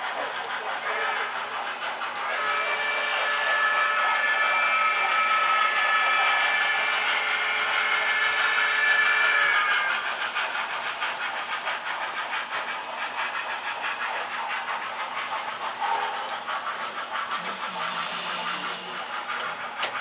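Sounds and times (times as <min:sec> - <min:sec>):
model steam locomotive chuffing: 0:00.0 - 0:20.0
locomotive whistle: 0:00.9 - 0:01.4, 0:02.2 - 0:10.0, 0:17.3 - 0:20.0.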